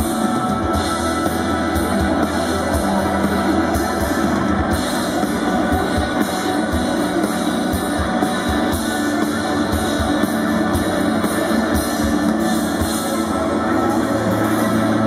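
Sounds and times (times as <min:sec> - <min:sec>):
live rock band: 0:00.0 - 0:15.0
sustained electric guitar: 0:00.0 - 0:15.0.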